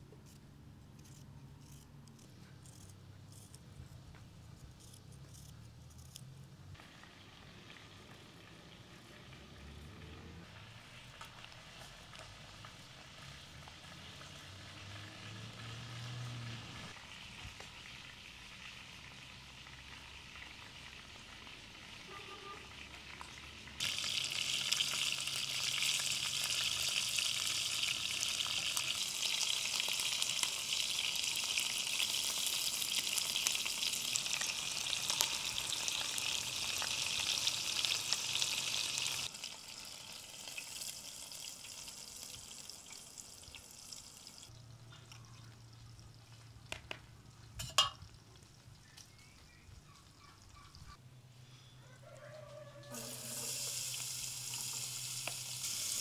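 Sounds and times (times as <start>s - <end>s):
chicken sizzling in oil: 6.8s - 44.6s, 52.1s - 56.0s.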